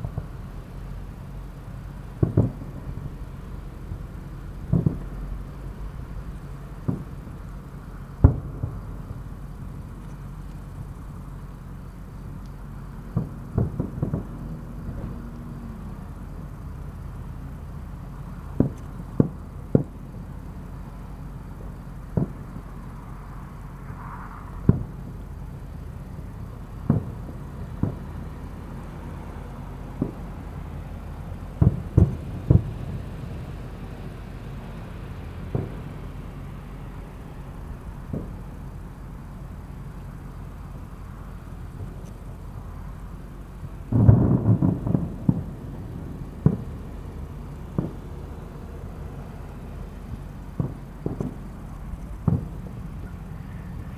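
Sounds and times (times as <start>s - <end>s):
steady low rumble: 0.0s - 53.9s
firework shells bursting: 1.6s - 23.1s, 24.5s - 30.7s, 31.3s - 33.4s, 35.4s - 36.2s, 37.3s - 42.4s, 43.0s - 48.9s, 49.9s - 53.5s.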